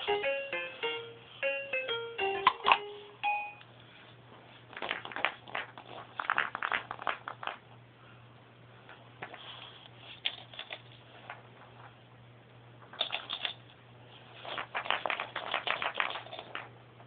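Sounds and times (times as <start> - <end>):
plastic rattle ball rattling: 14.4 - 16.7.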